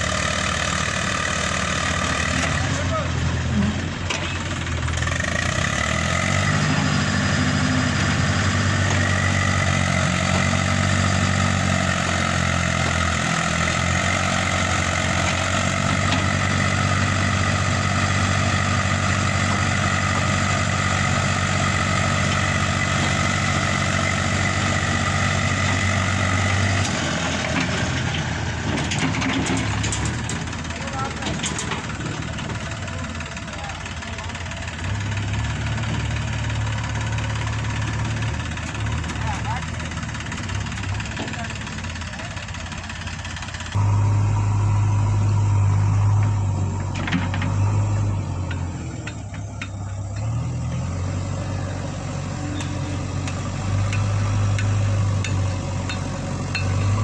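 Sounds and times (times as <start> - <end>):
diesel tractor engine running: 0.0 - 57.0
high whine: 43.8 - 47.0.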